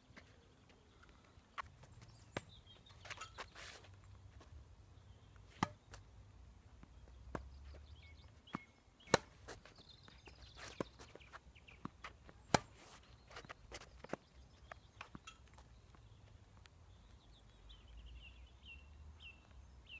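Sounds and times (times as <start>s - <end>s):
tennis ball bouncing: 5.4s - 6.1s, 6.8s - 7.8s, 8.5s - 9.6s, 11.8s - 12.8s
racket hitting tennis ball: 5.5s - 6.1s, 9.1s - 9.6s, 11.8s - 12.9s.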